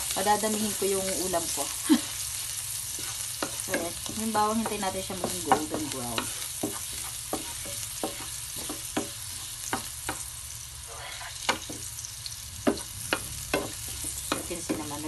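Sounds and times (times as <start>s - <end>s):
garlic sizzling in oil: 0.0s - 15.0s
wooden spatula scraping pan: 2.9s - 9.8s.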